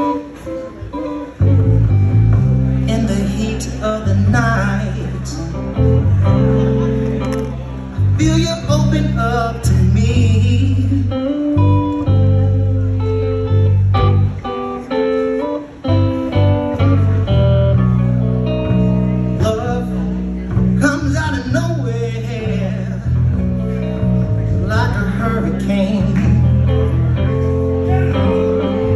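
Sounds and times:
electric guitar lead lines: 0.0s - 28.9s
live blues band playing: 0.0s - 28.9s.

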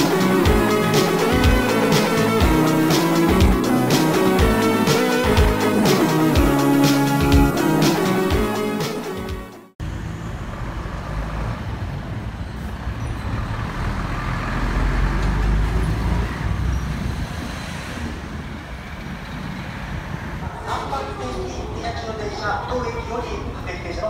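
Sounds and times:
traffic rumble: 9.8s - 24.0s.

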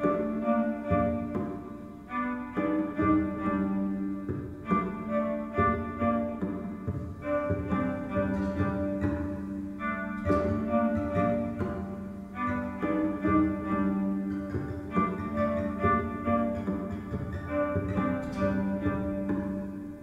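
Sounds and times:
violin played with bow: 0.0s - 20.0s.

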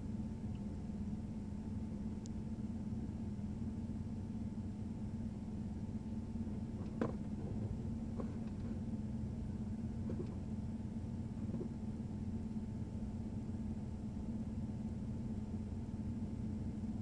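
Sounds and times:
vehicle idling hum: 0.0s - 17.0s
faint ticks: 0.5s - 0.7s, 2.2s - 2.4s.

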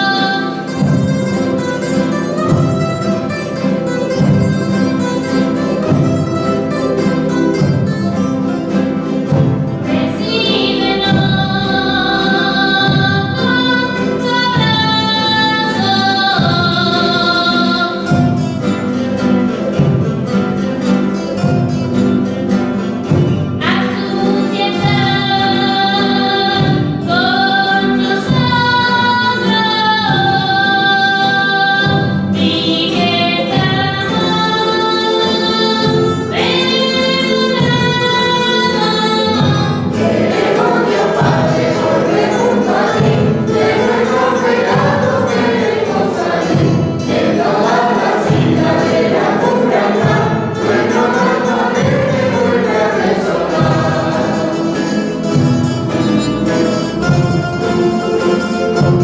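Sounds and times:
voices singing a hymn: 0.0s - 1.0s, 8.6s - 20.0s, 23.6s - 56.1s
strummed guitars: 0.0s - 59.0s.

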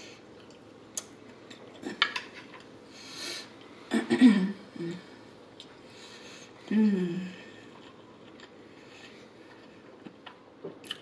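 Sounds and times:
soft breath: 2.9s - 3.9s, 5.1s - 7.8s, 8.6s - 9.9s.

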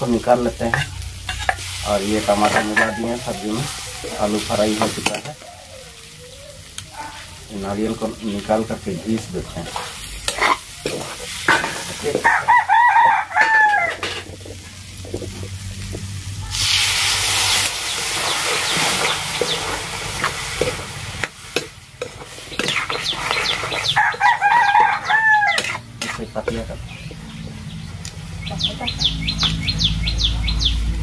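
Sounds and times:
potatoes sizzling in oil: 0.0s - 28.3s
metal ladle scraping: 0.7s - 4.2s, 9.5s - 12.3s, 18.1s - 24.0s, 24.8s - 26.6s
rooster crowing: 2.4s - 4.1s, 12.0s - 14.3s, 23.8s - 25.8s.

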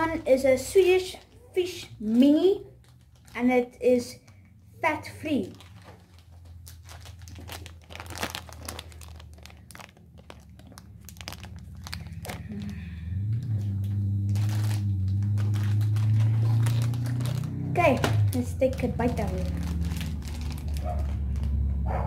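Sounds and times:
plastic bag crinkling: 2.5s - 4.4s, 5.4s - 21.6s
steady low hum: 8.2s - 22.0s.

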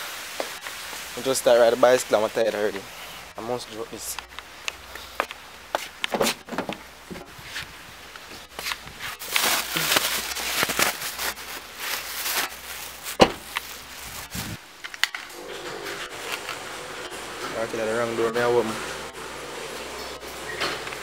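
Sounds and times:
footsteps: 4.1s - 14.6s
fabric rubbing over microphone: 7.2s - 14.6s.

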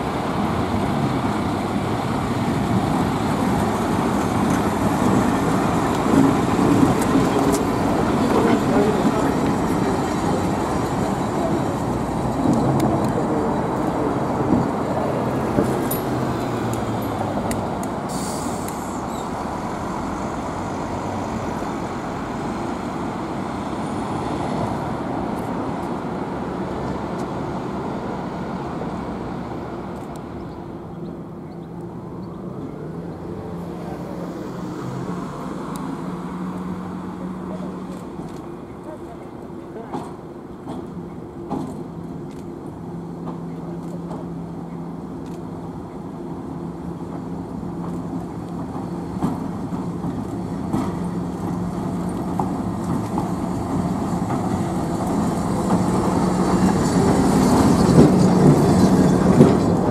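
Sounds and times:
tram wheels rumbling on tracks: 0.0s - 59.9s
short hiss: 18.1s - 19.0s.

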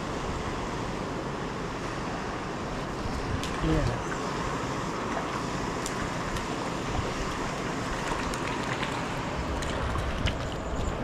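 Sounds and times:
stream flowing over stones: 2.6s - 11.0s.

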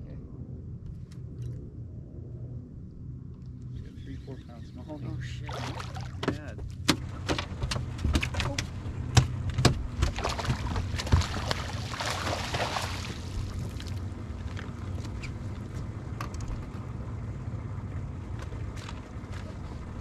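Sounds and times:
fish splashing and thrashing: 5.4s - 15.7s
knocks and thumps on boat: 5.5s - 16.7s.

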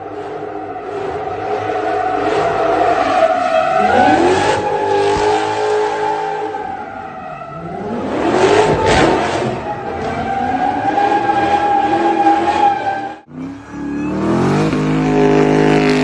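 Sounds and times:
tires squealing: 0.0s - 16.0s
car engine revving: 7.6s - 16.0s.

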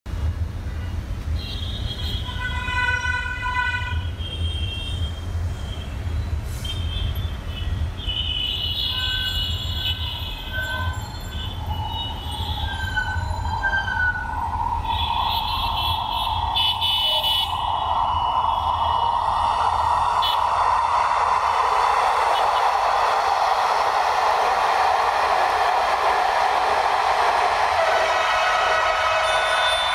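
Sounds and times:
city traffic rumble: 0.0s - 29.9s
car horn: 0.7s - 5.2s, 6.6s - 11.0s, 15.0s - 17.6s, 28.2s - 29.9s
electric train running: 7.3s - 29.9s.

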